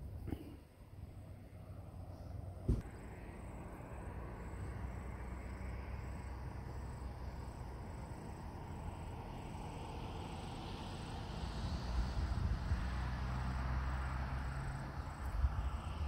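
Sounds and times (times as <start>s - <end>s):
sharp thump: 2.6s - 3.0s.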